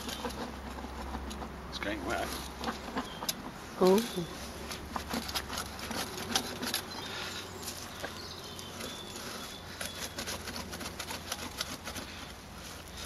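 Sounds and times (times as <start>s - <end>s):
auger clicking in wet soil: 4.6s - 13.0s.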